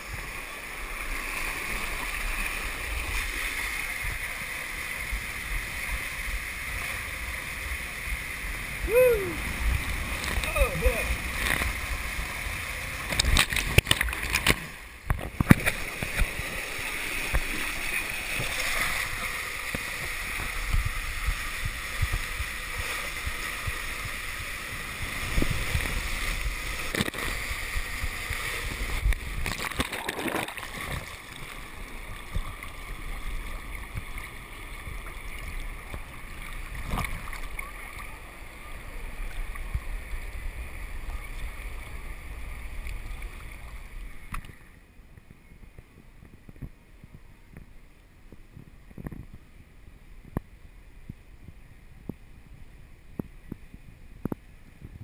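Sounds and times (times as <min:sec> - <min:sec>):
pool water washing: 0:00.0 - 0:44.7
water rushing through slide tube: 0:00.0 - 0:44.8
loud splash: 0:29.3 - 0:31.4.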